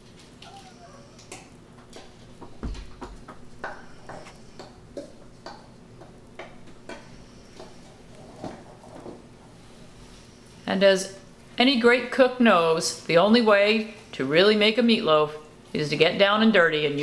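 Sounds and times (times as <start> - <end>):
dull thump: 2.4 - 4.3.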